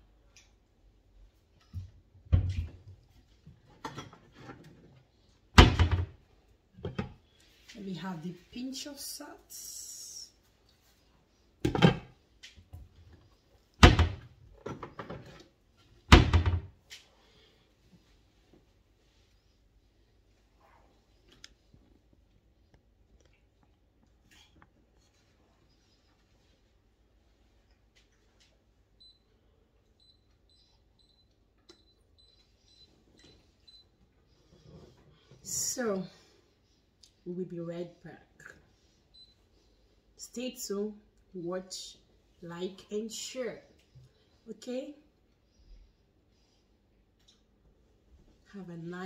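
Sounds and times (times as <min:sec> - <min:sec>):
faint high-pitched chirps: 0:30.0 - 0:33.9.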